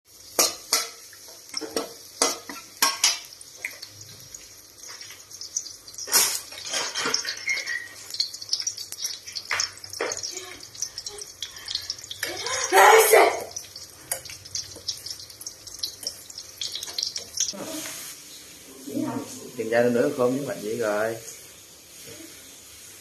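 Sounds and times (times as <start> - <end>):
food sizzling in oil: 0.1 - 23.0
metal spatula scraping a wok: 6.0 - 8.2.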